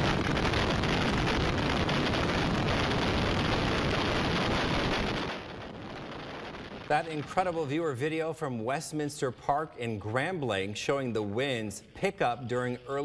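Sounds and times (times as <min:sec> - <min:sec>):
strong wind: 0:00.0 - 0:07.5
heavy rain: 0:00.0 - 0:08.0.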